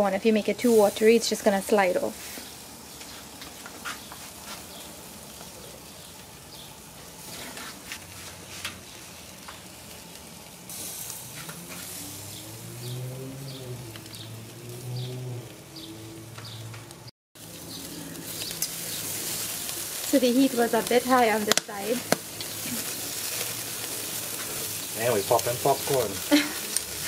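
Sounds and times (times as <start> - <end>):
corn sizzling on a grill: 0.0 - 27.0
pops and crackles: 20.8 - 24.7.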